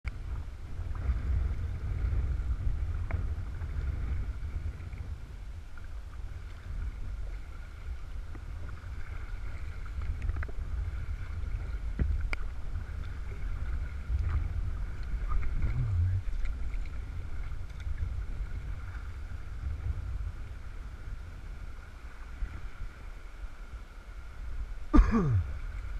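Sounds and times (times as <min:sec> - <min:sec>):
water and wind rumble on mic: 0:00.0 - 0:25.9
paddle strokes: 0:00.3 - 0:20.3.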